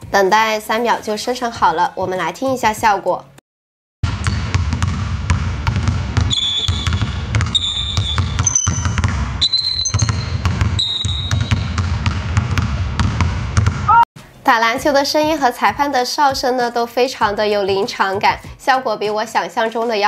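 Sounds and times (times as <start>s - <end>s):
basketball bouncing: 4.0s - 14.0s
referee's whistle blasts: 6.3s - 11.7s
squeaking shoes: 6.3s - 11.8s.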